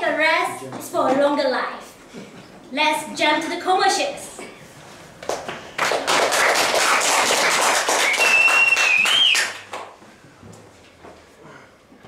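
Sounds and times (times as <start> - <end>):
audience applauding: 5.3 - 9.9
whistle: 8.0 - 9.7.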